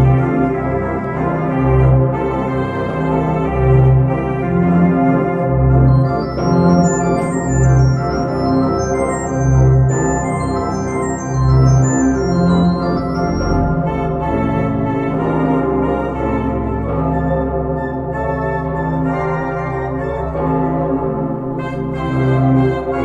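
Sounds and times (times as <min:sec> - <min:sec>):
organ music: 0:00.0 - 0:23.0.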